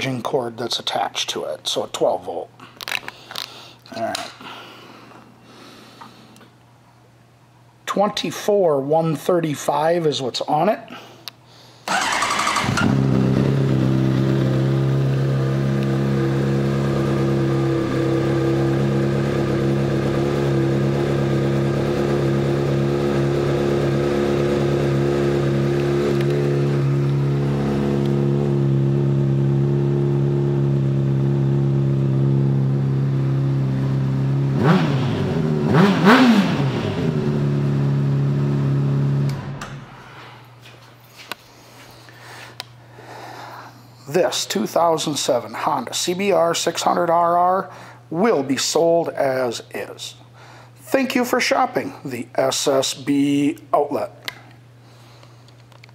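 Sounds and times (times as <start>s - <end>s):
motorcycle engine idling: 11.9s - 34.5s
motorcycle engine revving: 11.9s - 39.6s
motorcycle engine starting: 11.9s - 40.1s.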